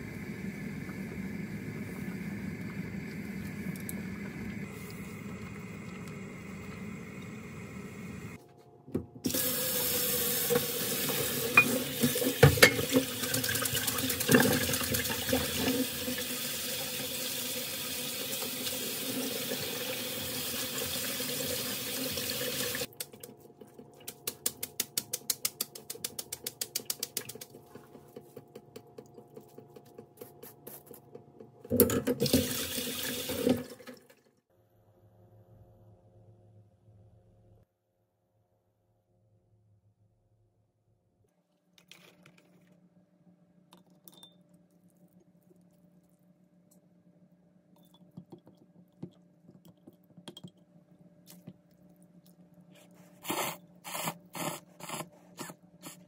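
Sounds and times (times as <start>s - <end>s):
pot boiling hiss: 0.0s - 8.4s, 53.1s - 56.0s
tap water running into sink: 9.3s - 22.9s, 31.7s - 34.2s.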